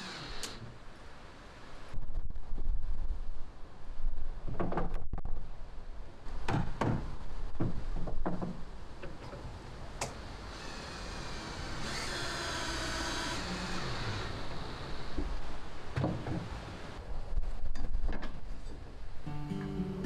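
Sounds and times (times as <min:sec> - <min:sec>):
cordless drill driving screw: 0:00.0 - 0:00.6.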